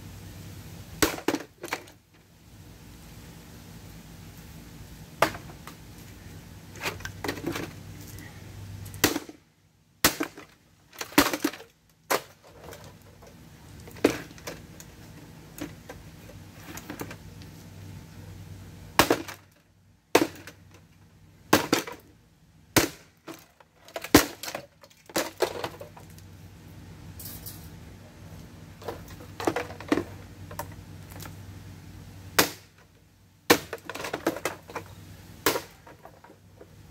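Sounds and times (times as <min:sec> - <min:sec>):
plastic heater being smashed: 0:01.0 - 0:02.0, 0:09.0 - 0:09.4, 0:10.0 - 0:13.0, 0:13.9 - 0:14.6, 0:19.0 - 0:20.8, 0:21.5 - 0:22.1, 0:22.8 - 0:26.1, 0:28.8 - 0:30.2, 0:32.4 - 0:32.8, 0:33.5 - 0:36.4.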